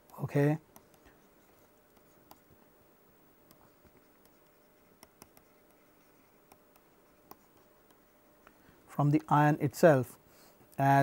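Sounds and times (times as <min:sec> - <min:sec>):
pen tapping on paper: 0:03.9 - 0:05.8.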